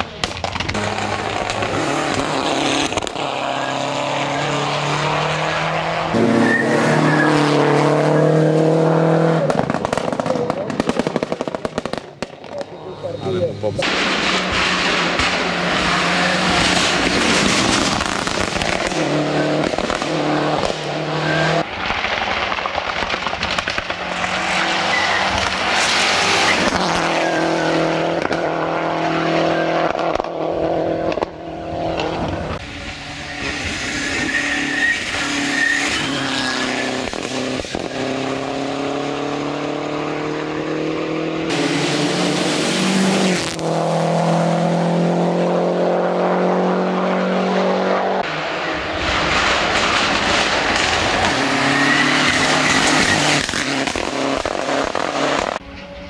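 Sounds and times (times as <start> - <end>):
rally car engine revving: 0.0 - 56.0.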